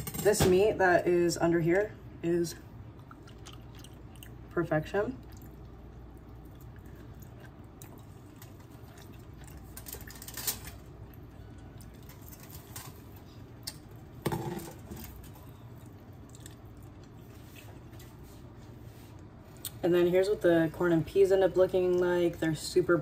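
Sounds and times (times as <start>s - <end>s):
foil and chicken skin crackling: 8.2s - 13.8s.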